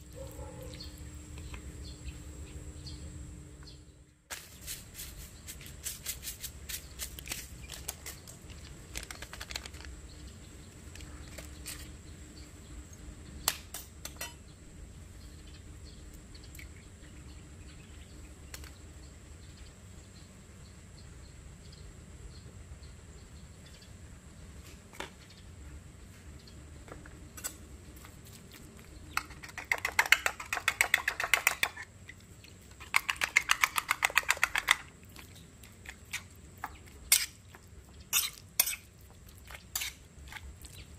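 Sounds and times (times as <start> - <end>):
spoon clinking and scraping plate: 38.1 - 38.9, 39.8 - 40.0.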